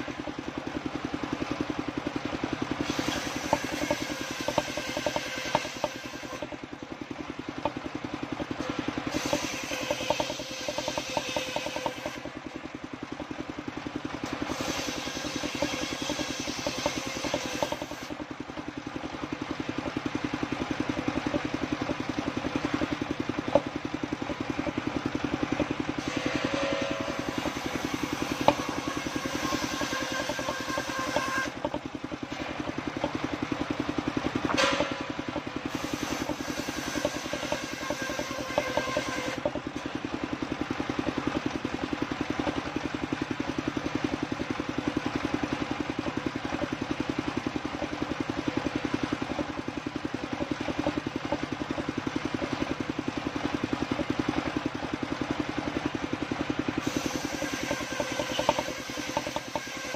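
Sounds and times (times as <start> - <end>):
engine chugging: 0.0 - 59.9
table saw cutting wood: 2.8 - 6.6, 8.6 - 12.3, 14.2 - 18.2, 26.0 - 33.1, 34.5 - 39.5, 56.8 - 59.9.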